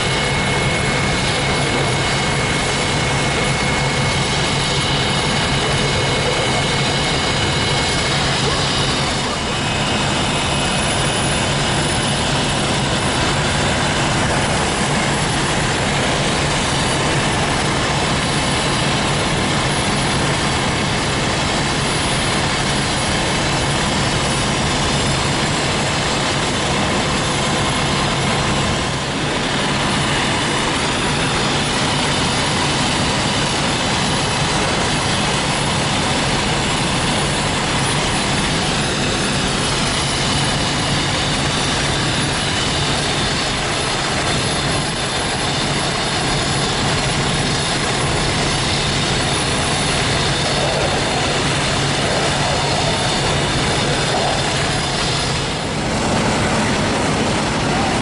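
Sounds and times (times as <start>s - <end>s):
fire engine pumps droning: 0.0s - 58.0s.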